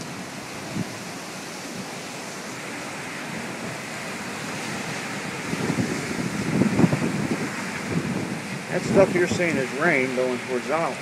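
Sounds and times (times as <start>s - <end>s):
heavy wind-driven rain: 0.0s - 11.0s
wind hitting microphone: 4.4s - 11.0s.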